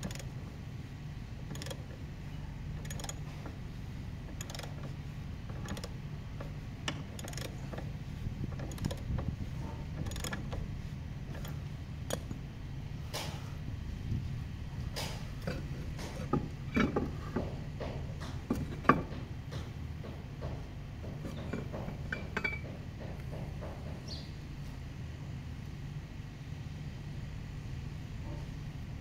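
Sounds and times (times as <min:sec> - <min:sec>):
ratchet wrench clicking: 0:00.0 - 0:00.3, 0:01.5 - 0:01.8, 0:02.8 - 0:03.3, 0:04.4 - 0:04.9, 0:05.6 - 0:05.9, 0:06.9 - 0:07.6, 0:08.6 - 0:09.1, 0:10.0 - 0:10.5
steady low hum: 0:00.0 - 0:29.0.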